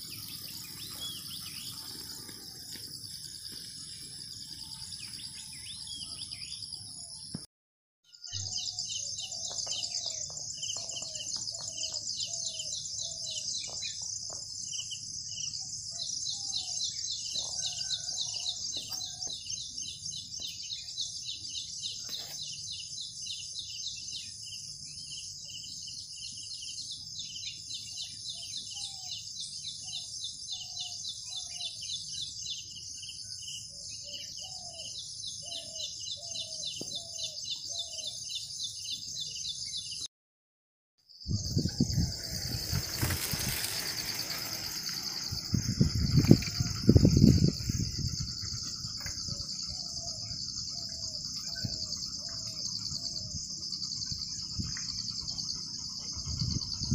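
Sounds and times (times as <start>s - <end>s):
high-pitched insect chorus: 0.0s - 7.2s, 41.3s - 56.9s.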